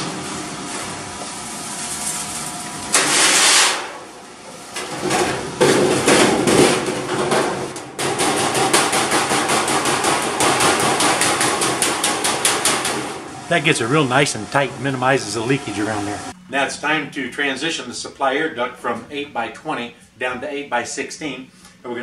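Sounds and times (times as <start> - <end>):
hammer tapping sheet metal: 5.6 - 13.2.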